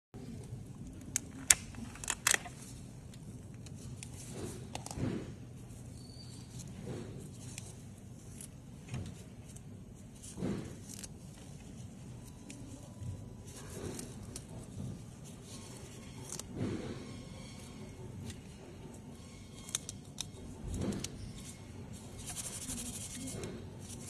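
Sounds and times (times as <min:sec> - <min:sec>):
low steady hum: 0:00.2 - 0:24.0
soft rubbing and rustling: 0:20.8 - 0:24.0.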